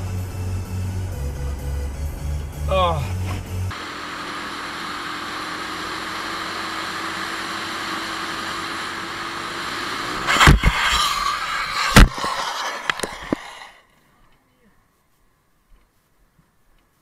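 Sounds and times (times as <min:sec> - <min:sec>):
faint engine hum: 0:00.0 - 0:03.8
motorcycle crashing on asphalt: 0:10.2 - 0:13.8
wind rush: 0:10.3 - 0:13.8.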